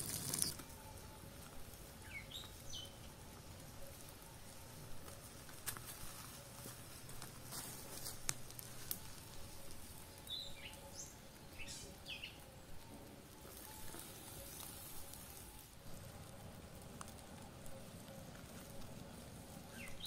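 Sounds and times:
bird chirping: 0:00.0 - 0:04.6, 0:09.0 - 0:15.1, 0:17.6 - 0:20.0
campfire crackling: 0:00.0 - 0:20.0
fire snaps: 0:00.0 - 0:20.0.

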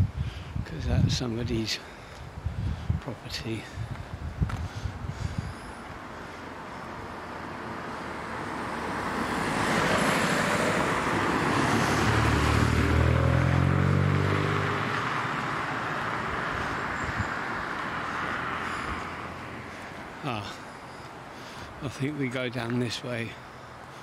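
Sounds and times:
car driving past: 0:07.2 - 0:19.8.

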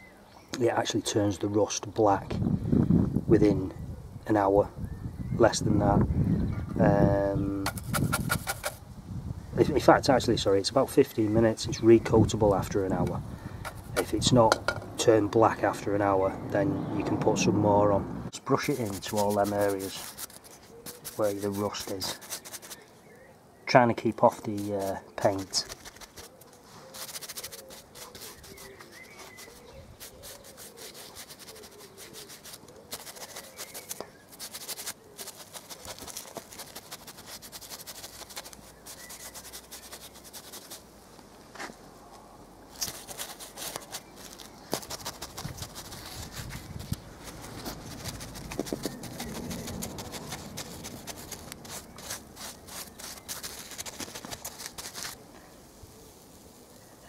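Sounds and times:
paintbrush scrubbing metal: 0:13.7 - 0:14.9, 0:18.5 - 0:22.8, 0:24.2 - 0:40.8, 0:42.8 - 0:55.2.

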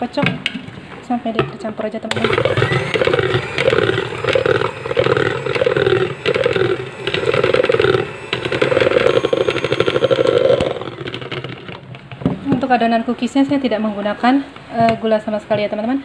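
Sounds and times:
electric hand mixer running: 0:02.1 - 0:12.2.

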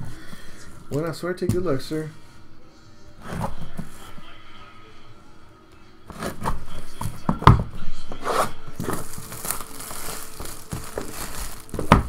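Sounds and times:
shrink wrap tearing and crinkling: 0:08.8 - 0:12.0.

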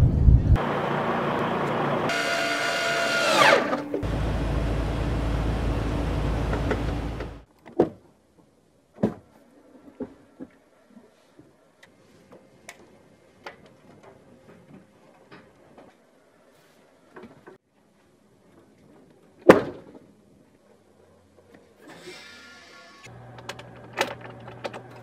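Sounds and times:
rushing noise with deep rumble: 0:00.0 - 0:00.8.

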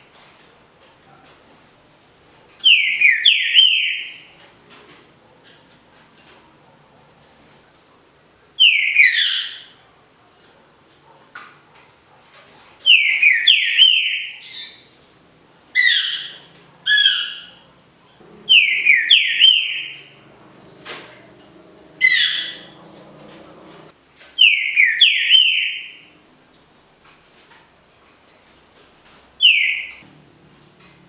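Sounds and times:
bird singing whistled phrases: 0:02.7 - 0:04.2, 0:12.9 - 0:14.8, 0:18.5 - 0:20.1, 0:24.4 - 0:26.0, 0:29.4 - 0:30.0.

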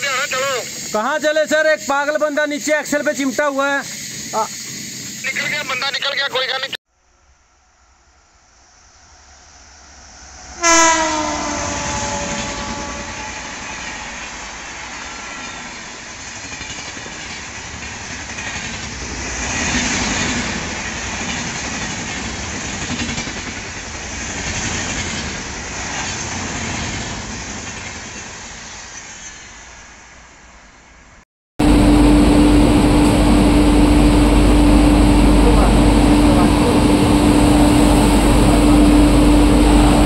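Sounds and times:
train horn blast: 0:10.6 - 0:14.2, 0:31.6 - 0:40.0
train coaches rumbling and clattering: 0:11.4 - 0:29.5, 0:31.6 - 0:40.0.

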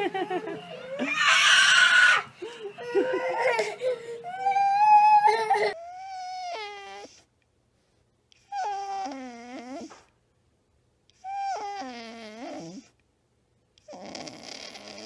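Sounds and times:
high-pitched wavering crying calls: 0:00.8 - 0:02.3
dog whining: 0:04.3 - 0:07.2, 0:08.4 - 0:10.1, 0:11.2 - 0:12.9.

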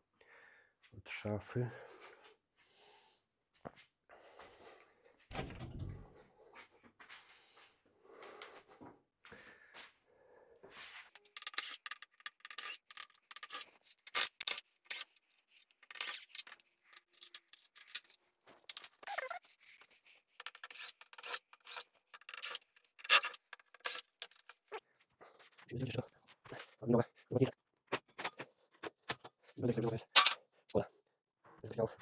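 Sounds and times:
screwdriver scrapes and clicks: 0:11.1 - 0:24.8.

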